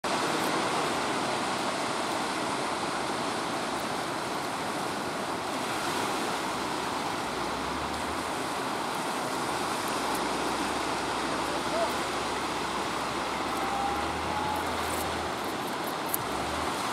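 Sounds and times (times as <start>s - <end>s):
surf breaking: 5.4s - 16.9s.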